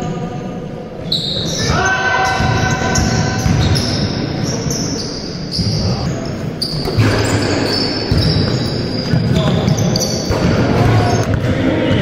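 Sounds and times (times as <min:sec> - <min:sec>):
sneaker squeaks: 0:01.0 - 0:12.0
basketball bouncing on court: 0:02.2 - 0:12.0.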